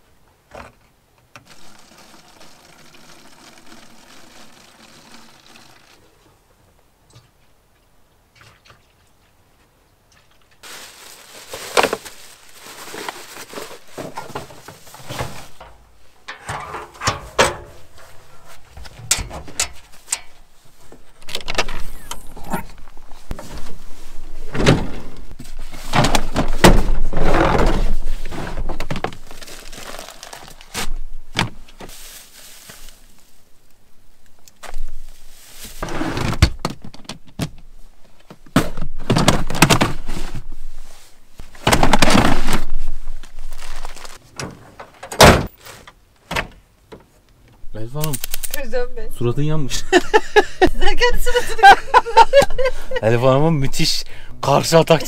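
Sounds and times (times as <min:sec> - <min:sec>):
plastic bags crinkling: 0:10.6 - 0:16.0, 0:29.0 - 0:30.7, 0:43.1 - 0:44.2
knocks and clicks of gear: 0:15.6 - 0:22.3.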